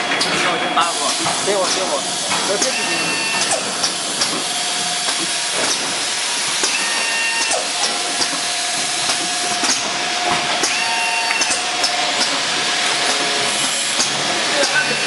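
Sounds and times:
machine clicks and clacks: 0.0s - 15.0s
machine hissing: 0.8s - 15.0s
thin machine whine: 0.8s - 15.0s.

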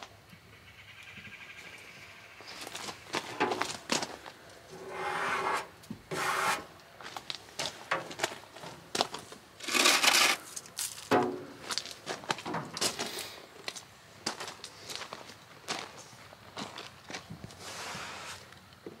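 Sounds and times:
footsteps crunching on gravel: 2.4s - 4.4s, 7.0s - 9.5s, 10.3s - 18.4s.

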